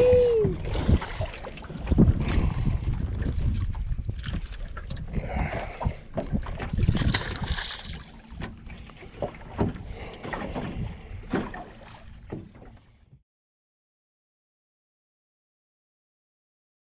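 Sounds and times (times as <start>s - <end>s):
wind rumbling on microphone: 0.0s - 11.6s
water noise: 0.0s - 13.2s
knocks and clatter on boat: 0.5s - 13.2s.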